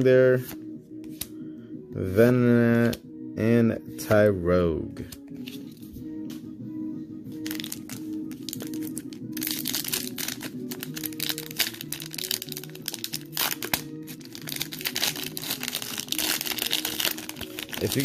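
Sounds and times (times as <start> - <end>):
simple background music: 0.0 - 18.0
foil wrapper crinkling: 7.5 - 18.0.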